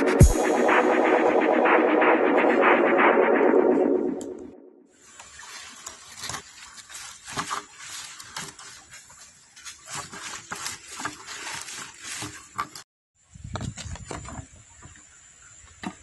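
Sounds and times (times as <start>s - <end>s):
leaves and plastic rustling: 5.0s - 12.8s.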